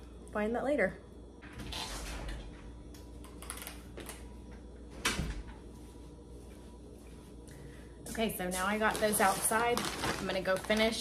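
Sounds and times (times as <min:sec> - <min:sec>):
door opening and shutting: 0:01.4 - 0:02.7.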